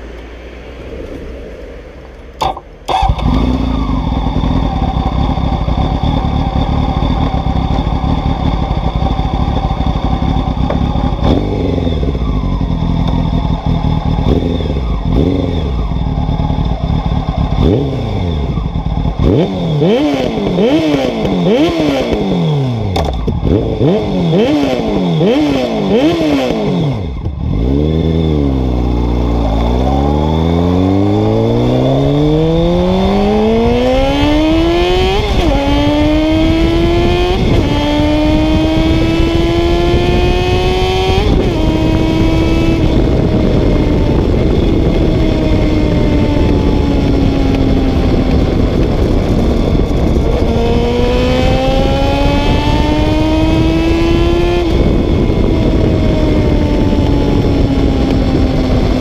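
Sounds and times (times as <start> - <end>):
wind rushing: 0.0 - 4.0, 23.3 - 59.0
motorcycle engine revving through gears: 0.8 - 59.0.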